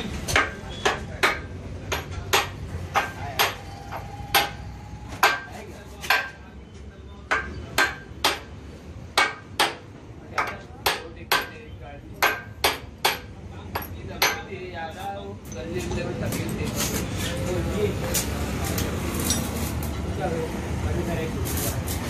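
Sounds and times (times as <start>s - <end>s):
hammer striking steel: 0.3s - 6.4s, 7.3s - 8.5s, 9.2s - 11.6s, 12.2s - 14.5s.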